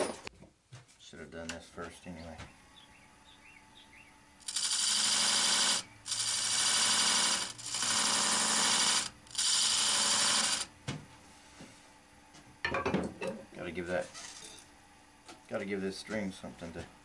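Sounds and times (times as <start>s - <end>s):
lathe faint hum: 0.0s - 12.6s
tool scraping spinning wood: 4.4s - 10.7s.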